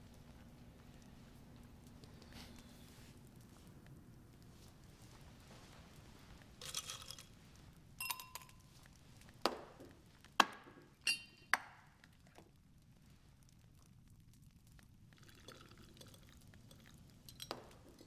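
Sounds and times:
glass decanters clinking and knocking: 6.6s - 7.3s, 8.0s - 8.6s, 11.0s - 11.5s.

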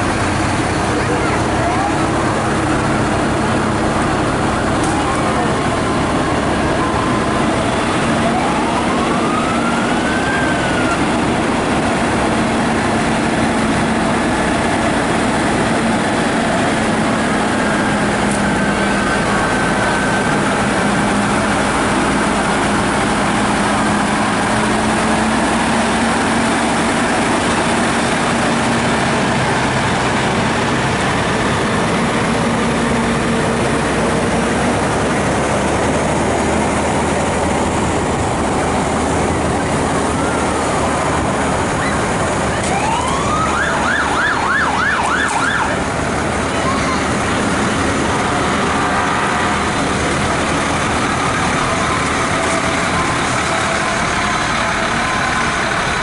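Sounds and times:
fire truck engines running: 0.0s - 56.0s
siren sweeping and yelping: 39.9s - 45.9s.

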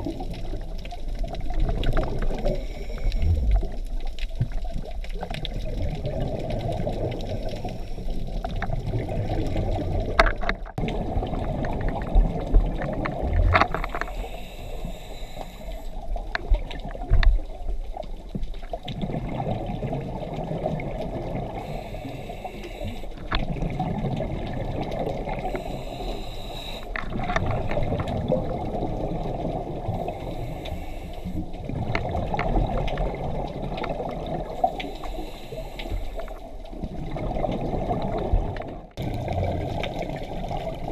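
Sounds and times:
bubbling exhaled air: 1.4s - 16.7s, 18.9s - 40.9s
regulator inhale hiss: 2.2s - 3.8s, 13.8s - 16.0s, 21.6s - 23.2s, 25.4s - 27.0s, 30.0s - 31.5s, 34.6s - 36.5s.

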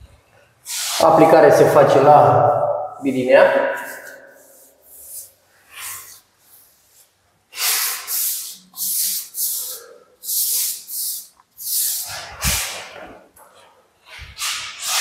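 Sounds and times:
wall brush swishing on plaster: 0.6s - 1.5s, 3.7s - 13.3s, 14.0s - 15.0s.

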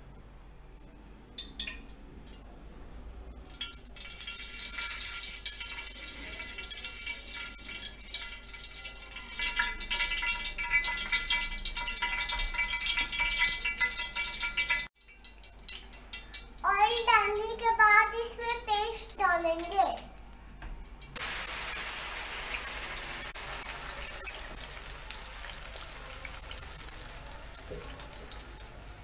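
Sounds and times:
liquid sizzling in hot pan: 3.4s - 16.6s, 21.0s - 29.0s.

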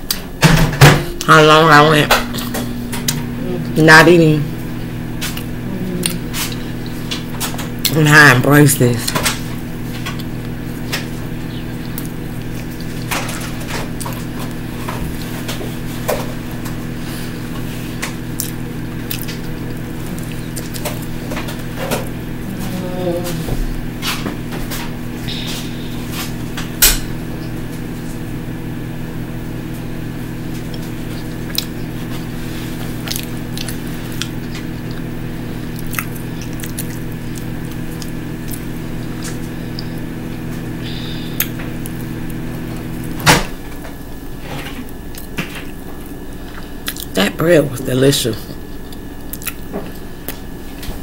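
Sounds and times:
microwave shutting off click: 0.0s - 3.8s, 9.0s - 22.4s, 23.7s - 46.2s
microwave oven humming: 0.0s - 51.0s.

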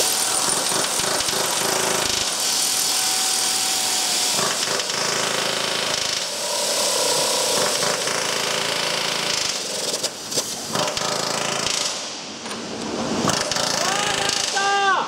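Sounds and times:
pneumatic nut runner grinding: 0.0s - 11.8s.

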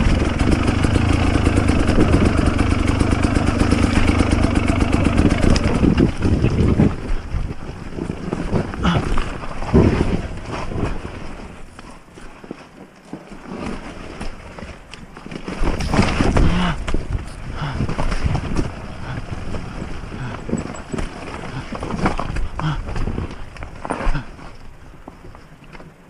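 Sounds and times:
suspension knocking and rattling: 0.0s - 10.8s
motorcycle on low throttle: 0.0s - 11.1s.

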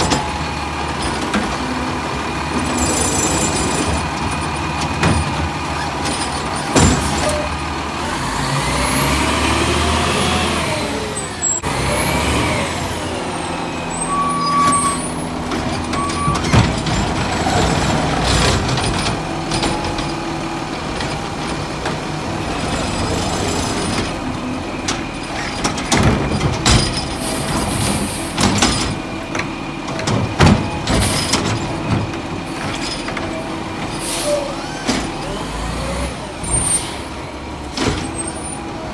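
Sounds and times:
carts knocking and banging: 0.0s - 7.8s, 14.1s - 36.7s, 37.4s - 38.9s
garbage truck diesel engine revving: 0.0s - 38.9s.

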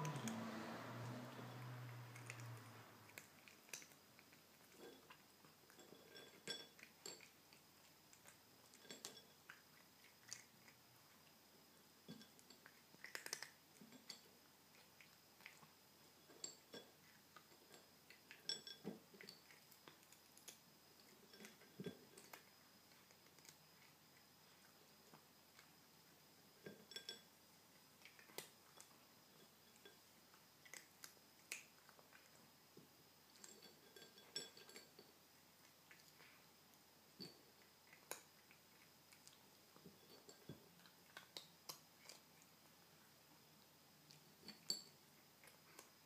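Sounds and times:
kibble clinking on plate: 0.0s - 10.6s, 12.0s - 23.6s, 26.6s - 27.3s, 33.3s - 35.2s, 39.1s - 42.2s, 44.3s - 45.9s
kitten crunching kibble: 0.0s - 32.6s, 33.2s - 46.0s.

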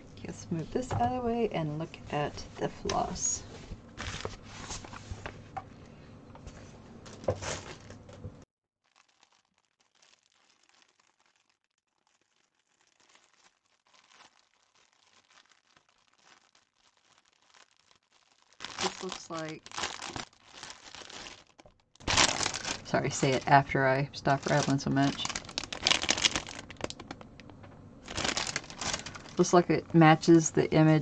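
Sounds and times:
plastic packaging crinkling: 4.0s - 5.3s, 7.0s - 8.2s, 8.8s - 31.0s.

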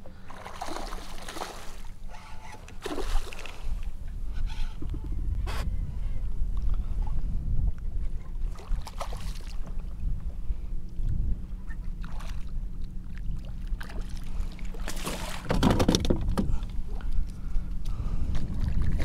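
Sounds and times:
low wind rumble on microphone: 0.0s - 19.0s
handling knocks on kayak: 15.1s - 16.6s.

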